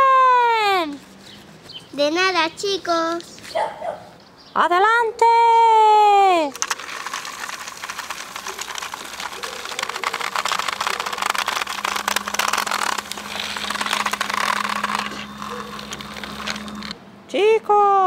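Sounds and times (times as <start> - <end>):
toy train motor clicking rattle: 6.4 - 17.0.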